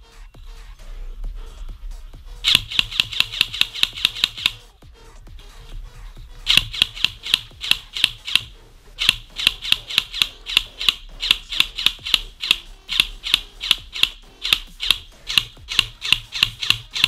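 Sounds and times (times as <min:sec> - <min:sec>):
airsoft rifle shots: 0:02.5 - 0:04.6, 0:06.5 - 0:17.0.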